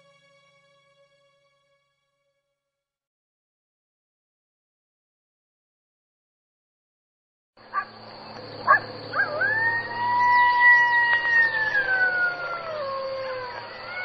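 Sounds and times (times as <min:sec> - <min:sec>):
coyote howling: 0:08.6 - 0:14.0.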